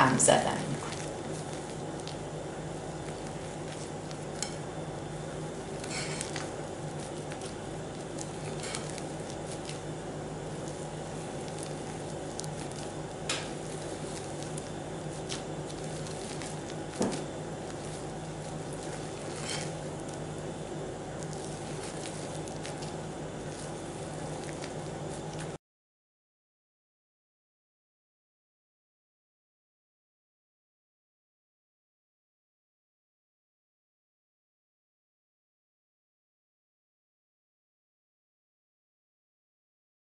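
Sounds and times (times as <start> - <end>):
steady background hum: 0.0 - 25.6
soft wet stirring: 0.1 - 25.6
spatula knocking and scraping bowl: 3.2 - 4.7, 5.8 - 7.5, 8.1 - 9.8, 12.6 - 14.6, 15.2 - 19.9.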